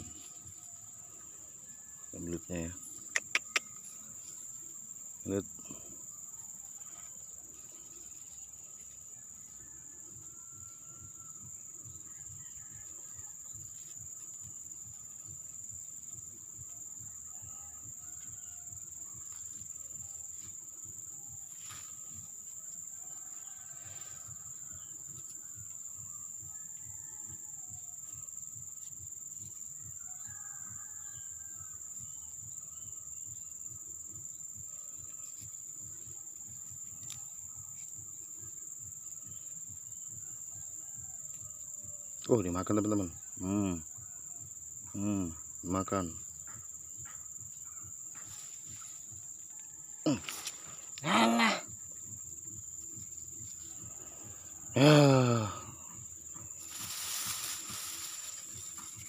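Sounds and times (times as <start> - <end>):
insects chirring: 0.0 - 59.0.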